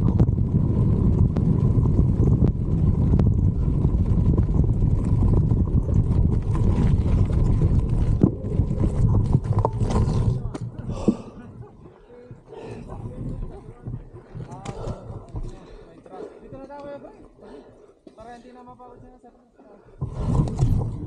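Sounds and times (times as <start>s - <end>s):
bike tyres rattling over rocks: 0.0s - 11.2s
wind rumble on microphone: 0.0s - 15.8s, 20.0s - 21.0s.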